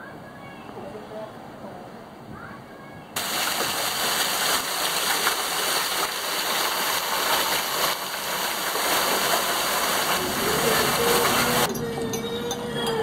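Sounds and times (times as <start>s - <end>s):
rushing splashing water: 3.2s - 11.7s.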